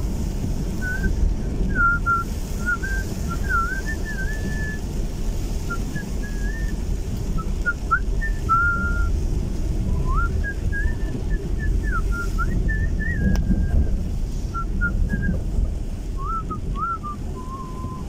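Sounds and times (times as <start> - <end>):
car road rumble: 0.0 - 18.0
person whistling a tune: 0.8 - 1.1, 1.7 - 4.8, 5.7 - 6.8, 7.4 - 9.1, 10.0 - 13.9, 14.5 - 15.4, 16.2 - 18.0.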